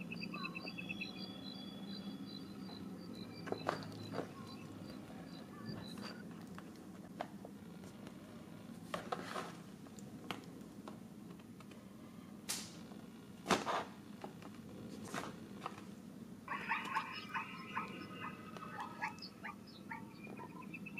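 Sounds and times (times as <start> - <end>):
rapid pulsing call: 0.0 - 6.2, 16.5 - 20.9.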